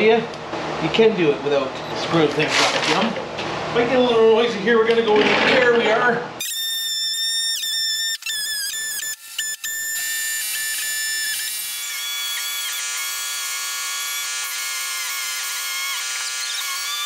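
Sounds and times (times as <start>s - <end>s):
die grinder cutting plastic: 6.4s - 17.0s.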